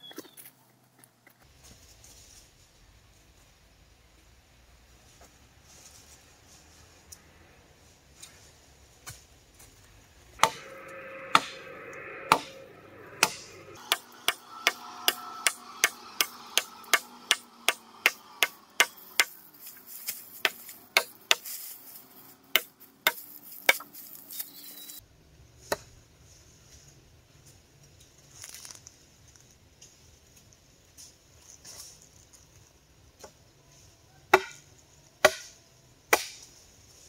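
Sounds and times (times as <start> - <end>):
faint ringing tone: 10.4 - 13.8
tool blows on wood: 10.4 - 19.3.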